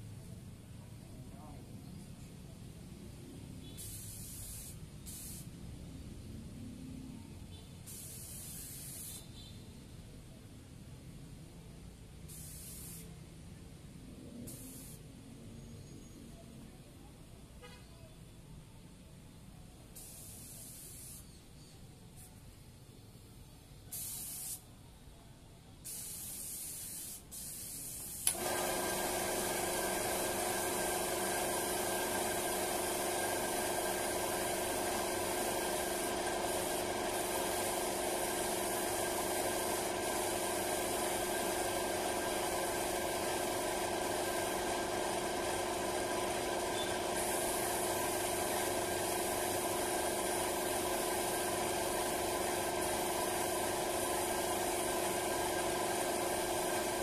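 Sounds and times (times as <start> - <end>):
paint spray gun hissing: 3.6 - 5.6, 7.8 - 9.3, 12.3 - 13.2, 14.5 - 15.0, 20.0 - 21.4, 23.9 - 24.6, 25.8 - 57.0
air compressor motor humming: 28.1 - 57.0.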